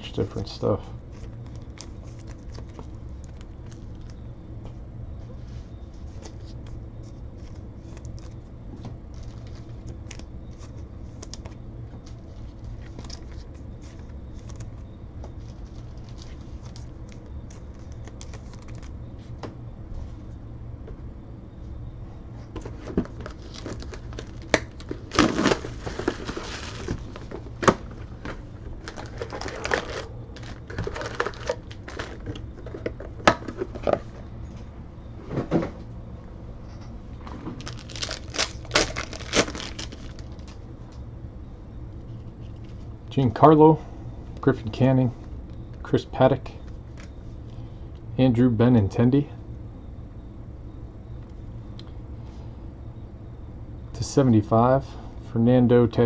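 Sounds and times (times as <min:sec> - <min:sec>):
steady low hum: 0:00.0 - 0:56.0
foil wrappers crinkling: 0:01.1 - 0:04.2, 0:09.1 - 0:19.0, 0:22.6 - 0:34.0, 0:37.6 - 0:40.6.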